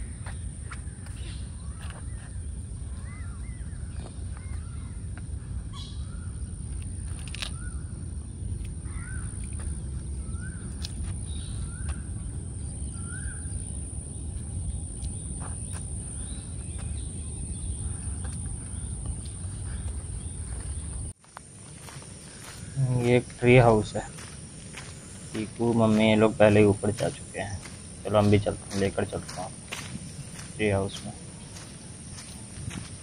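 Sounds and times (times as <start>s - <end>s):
birds whistling: 0.0s - 8.0s, 8.8s - 21.1s
high insect drone: 0.0s - 33.0s.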